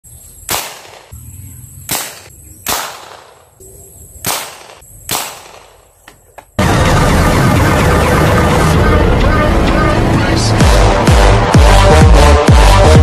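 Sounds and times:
marble gun shots: 0:00.5 - 0:01.1, 0:01.9 - 0:03.5, 0:04.2 - 0:05.9
loud music: 0:06.6 - 0:13.0.

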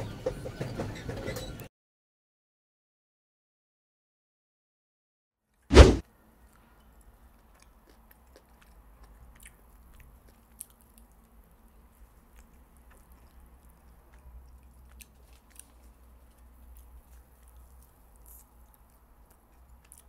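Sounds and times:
person chewing food: 0:07.0 - 0:20.0.

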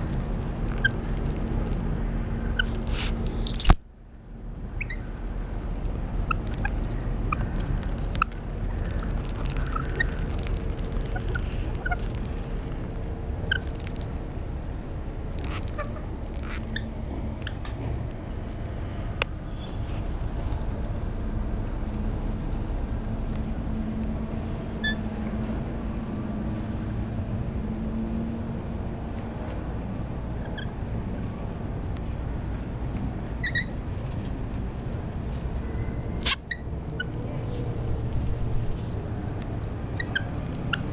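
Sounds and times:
parrots chirping and squeaking: 0:00.0 - 0:03.6, 0:04.7 - 0:14.2, 0:15.3 - 0:18.1, 0:24.8 - 0:25.0, 0:30.4 - 0:30.7, 0:33.4 - 0:34.0, 0:35.7 - 0:37.2, 0:39.9 - 0:40.9
steady low rumble: 0:00.0 - 0:40.9
lorikeets chirping: 0:06.2 - 0:12.1, 0:40.0 - 0:40.9.

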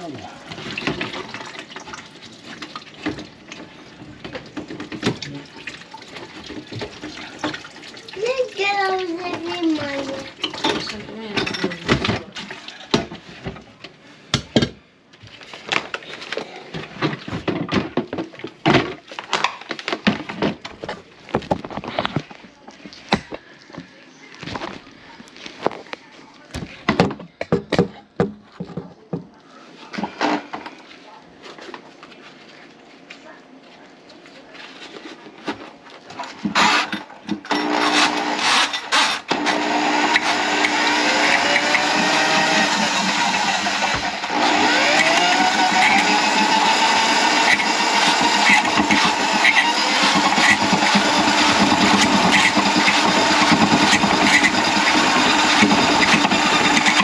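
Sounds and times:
hard objects knocking and clattering: 0:03.0 - 0:05.4, 0:16.7 - 0:24.8, 0:26.6 - 0:29.4, 0:43.0 - 0:57.0
small electric motor rattling: 0:36.6 - 0:57.0.

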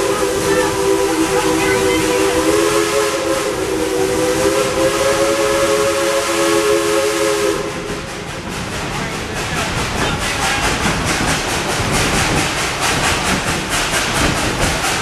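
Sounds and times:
steam locomotive chime whistle: 0:00.0 - 0:07.9
train running noise: 0:00.0 - 0:15.0.

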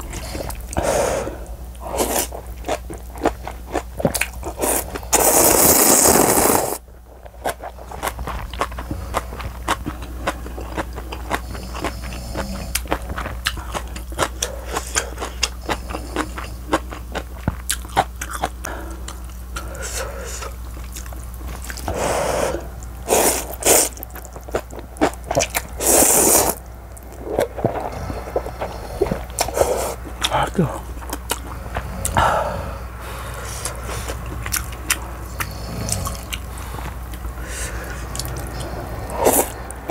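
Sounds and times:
chewing crunches and mouth clicks: 0:00.0 - 0:00.8, 0:01.4 - 0:22.0, 0:22.6 - 0:32.4, 0:33.3 - 0:39.9
low hum: 0:00.0 - 0:39.9
noodle slurps: 0:04.6 - 0:06.8, 0:21.9 - 0:24.0, 0:25.8 - 0:26.6.

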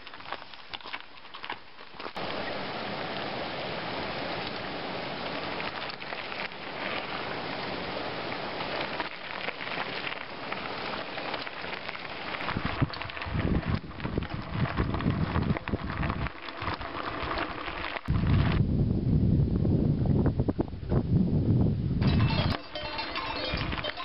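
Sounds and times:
forest stream rushing: 0:02.2 - 0:13.6
bike clicks and rattles: 0:05.3 - 0:07.3, 0:08.6 - 0:18.6, 0:22.0 - 0:24.0.

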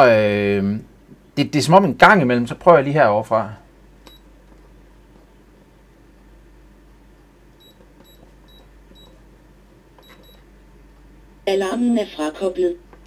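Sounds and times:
keypad beeps: 0:04.1 - 0:04.3, 0:07.6 - 0:09.2, 0:10.0 - 0:10.5.

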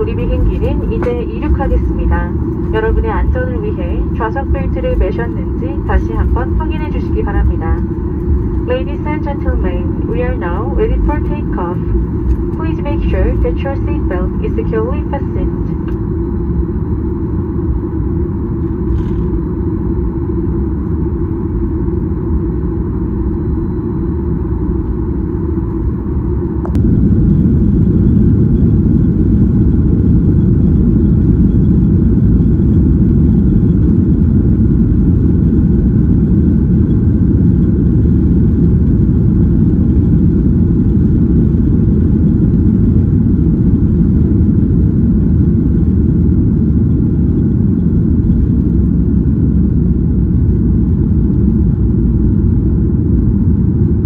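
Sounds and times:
jet engines and runway rumble: 0:00.0 - 0:54.0
click: 0:15.8 - 0:16.0.

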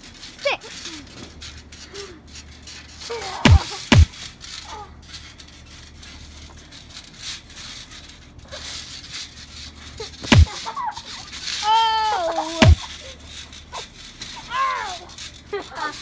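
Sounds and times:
thumps on trampoline: 0:03.2 - 0:04.3, 0:10.1 - 0:10.7, 0:12.5 - 0:12.9.

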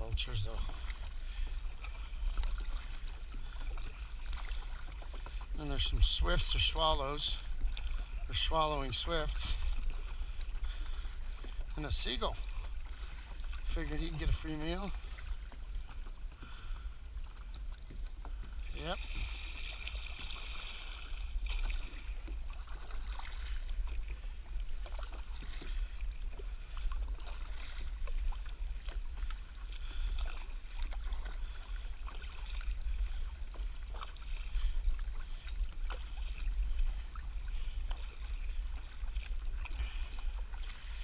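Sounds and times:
paddle splashing water: 0:00.0 - 0:41.0.

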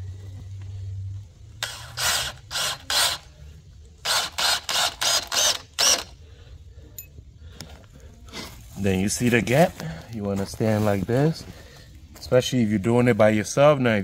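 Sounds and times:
cordless drill driving screws: 0:01.6 - 0:03.3, 0:04.0 - 0:06.1.

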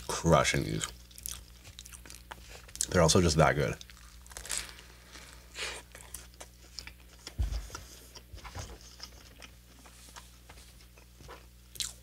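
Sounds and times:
low electrical hum: 0:00.0 - 0:12.0
wet chewing and smacking: 0:00.8 - 0:03.0.

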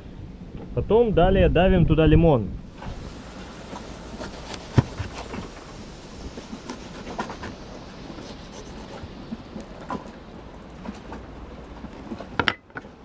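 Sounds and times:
steady hiss: 0:02.6 - 0:12.2.

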